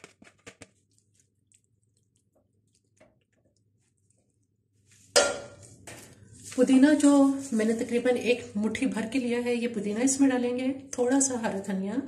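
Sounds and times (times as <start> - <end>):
spoon scraping wet food: 0.0 - 6.4.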